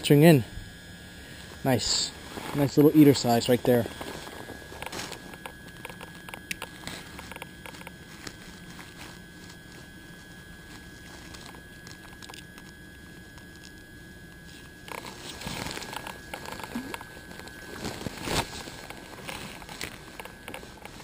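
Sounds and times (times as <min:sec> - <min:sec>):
rustling and scuffing: 0:01.4 - 0:05.4, 0:06.7 - 0:11.5.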